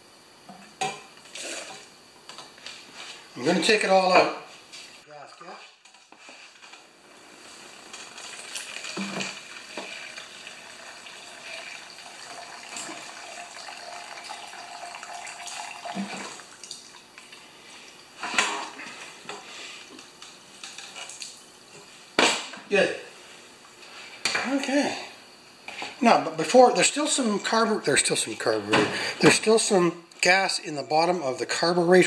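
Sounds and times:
fuel trickling into a plastic cup: 7.6 - 17.4.

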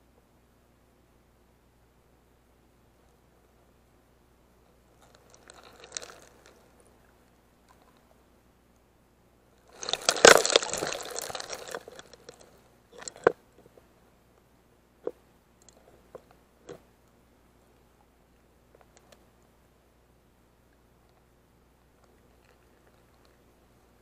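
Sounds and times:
crackling bubbles and grit: 4.7 - 8.2, 9.6 - 13.9, 15.0 - 16.8, 20.7 - 24.0.

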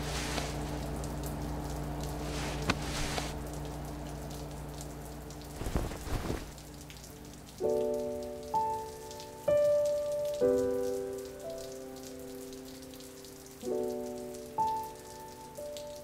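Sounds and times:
low steady hum: 0.0 - 8.5
water pattering: 0.0 - 9.0
sharp drips: 0.0 - 16.0.

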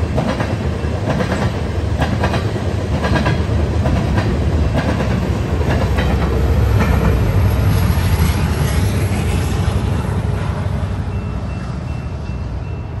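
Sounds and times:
diesel locomotive engine rumble: 0.0 - 13.0
train wheel clicks: 0.1 - 7.3.

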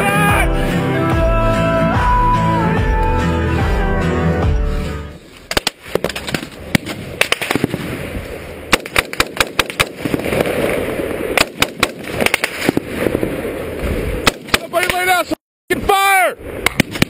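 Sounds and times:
music: 0.0 - 5.2
rifle shots: 5.5 - 8.0, 8.7 - 13.2, 14.2 - 15.1, 16.6 - 17.0.

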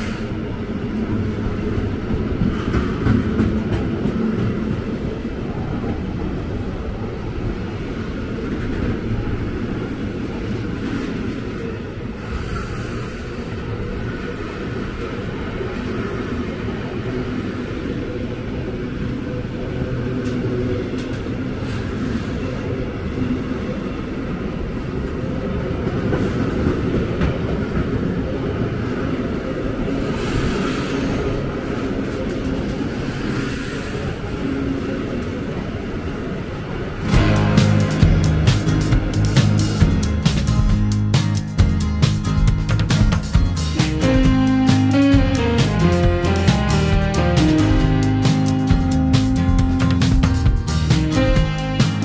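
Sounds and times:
train rumbling past: 0.0 - 52.0
music: 37.1 - 52.0.

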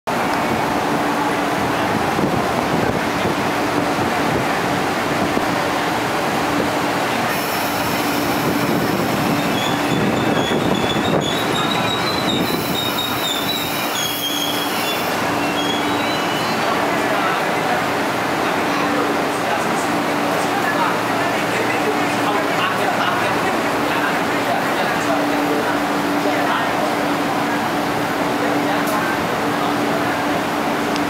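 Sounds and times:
train wheels rumbling on rail: 0.1 - 31.0
high wavering brake squeal: 7.3 - 16.8.

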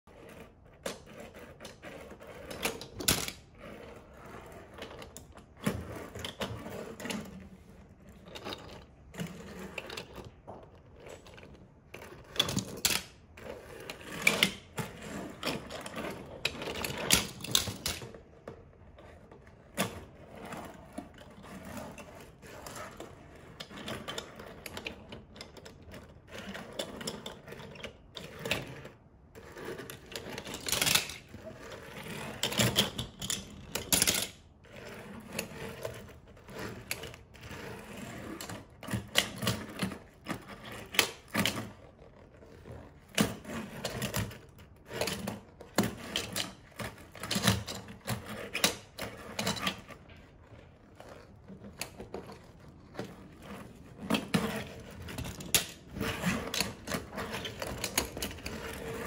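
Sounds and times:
toy cars clattering on wood: 13.9 - 18.7, 29.6 - 31.5, 32.3 - 34.5, 51.3 - 59.0.

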